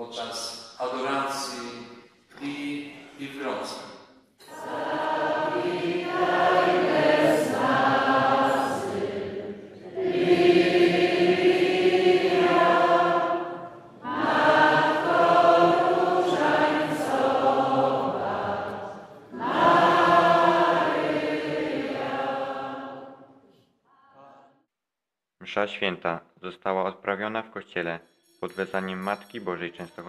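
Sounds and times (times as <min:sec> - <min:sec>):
choir singing a hymn: 0:04.4 - 0:23.4.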